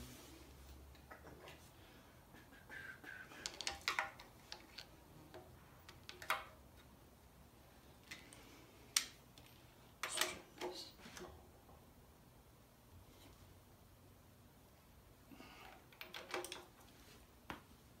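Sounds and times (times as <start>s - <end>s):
hand tools clicking and tapping: 3.3s - 6.6s, 15.9s - 16.8s.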